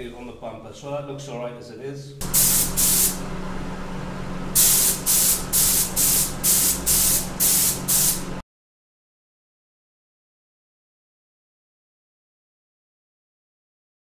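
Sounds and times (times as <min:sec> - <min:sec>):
extraction fan hum: 0:00.0 - 0:08.4
spray gun hissing bursts: 0:02.2 - 0:03.2, 0:04.6 - 0:08.4.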